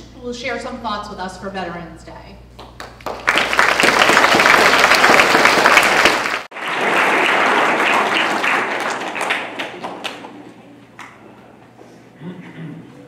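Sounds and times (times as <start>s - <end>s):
audience applause: 2.8s - 10.6s.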